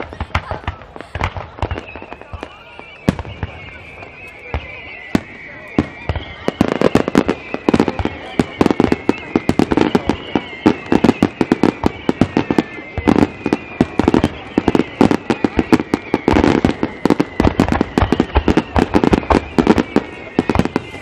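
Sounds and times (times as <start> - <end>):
high firework whistle: 0.0 - 21.0.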